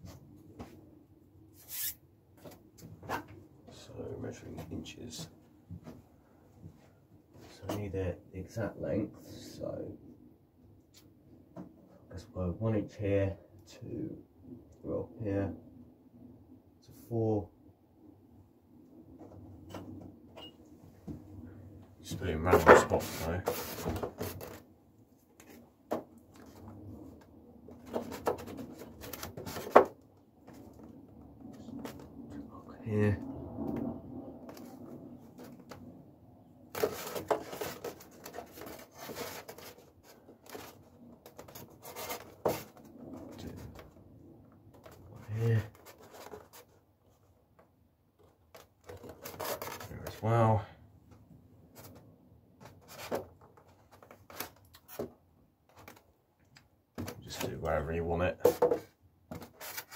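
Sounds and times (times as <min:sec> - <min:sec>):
scratchy rubbing on foam: 0:01.6 - 0:02.0, 0:36.8 - 0:43.6.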